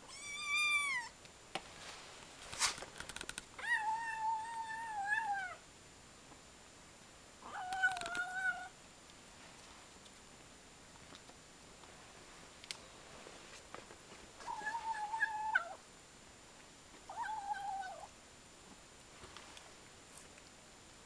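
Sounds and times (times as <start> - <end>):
cat meowing: 0.1 - 1.1
sharp clicks: 3.0 - 3.5.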